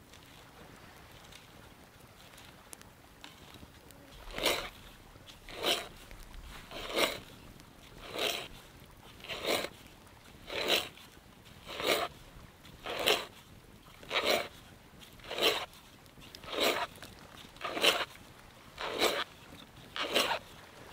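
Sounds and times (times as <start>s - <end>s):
hand auger rasping into log: 4.1s - 20.6s.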